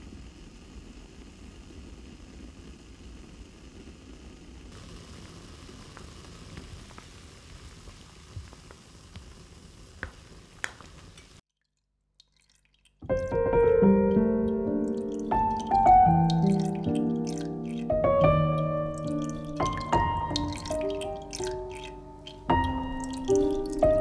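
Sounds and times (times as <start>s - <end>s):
water simmering bubbling: 10.0s - 24.0s
piano music: 13.0s - 24.0s.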